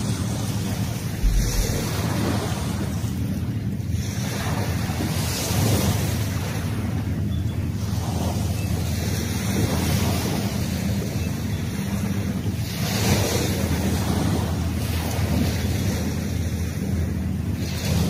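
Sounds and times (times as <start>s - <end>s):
wind rumbling on microphone: 0.0s - 7.2s
ocean surf breaking: 1.2s - 3.2s.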